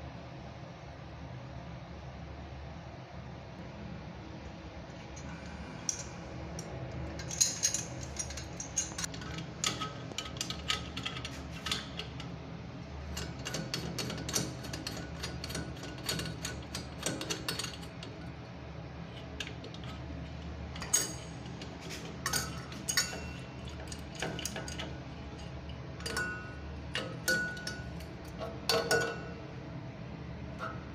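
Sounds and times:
metallic clicks and clinks: 5.2s - 12.3s.

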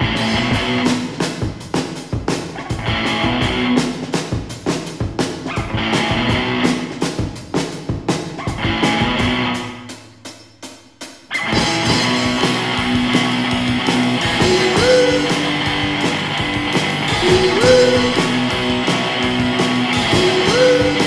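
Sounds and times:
rock band playing: 0.0s - 21.0s
bending guitar notes: 11.3s - 21.0s.

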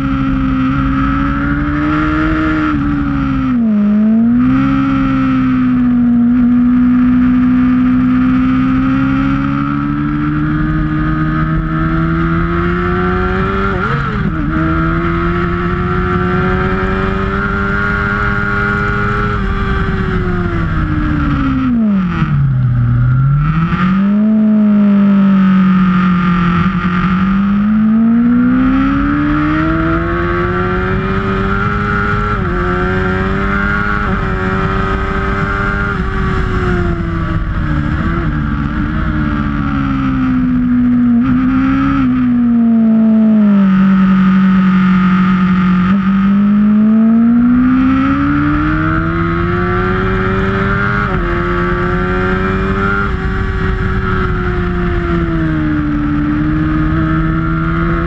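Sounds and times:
motorcycle engine revving: 0.0s - 58.0s
wind noise: 25.9s - 58.0s.

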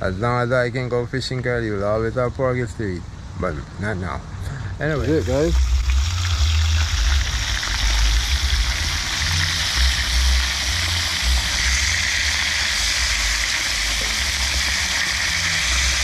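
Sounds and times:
fish frying in hot oil: 5.1s - 16.0s
low rumble: 5.1s - 16.0s.

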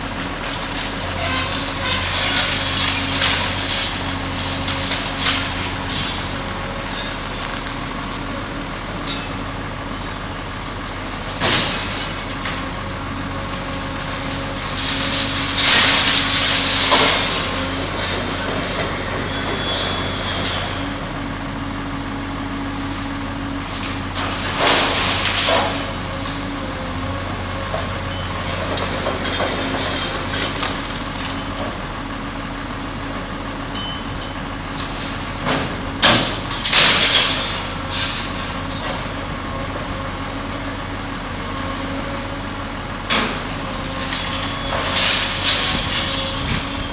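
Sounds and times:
diesel engine running: 0.0s - 46.9s
metal and glass crashing: 1.2s - 6.2s, 14.2s - 20.8s, 24.2s - 25.9s, 28.1s - 30.8s, 36.0s - 39.2s, 44.0s - 46.9s.

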